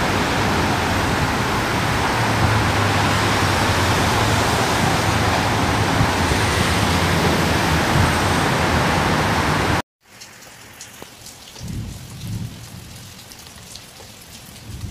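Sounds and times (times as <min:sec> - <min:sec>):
low rumbles of thunder: 0:00.0 - 0:08.8, 0:11.6 - 0:13.2, 0:14.6 - 0:14.9
loud rush of noise with buffeting: 0:00.0 - 0:09.8
rain pattering: 0:00.0 - 0:14.9.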